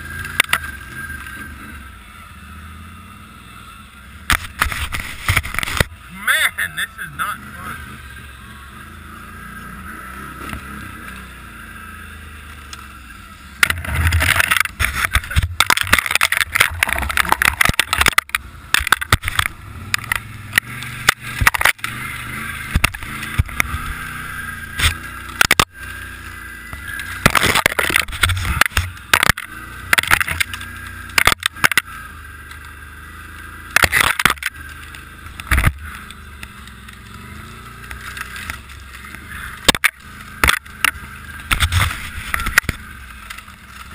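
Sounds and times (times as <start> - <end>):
snowmobile engine whine: 0.0 - 43.9
rustling and crackling through snow: 20.9 - 43.9.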